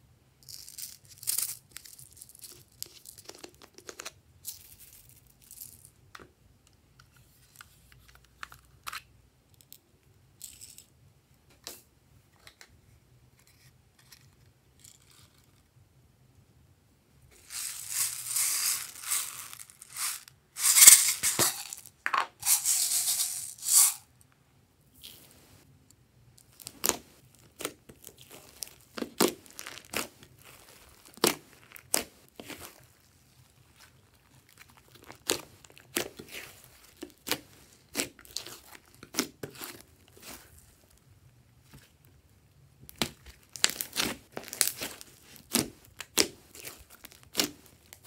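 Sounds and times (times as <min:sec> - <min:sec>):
beads dropping onto slime: 0:17.4 - 0:24.0
plastic tub rustling and crinkling: 0:17.4 - 0:24.1, 0:26.6 - 0:40.9, 0:42.9 - 0:48.0.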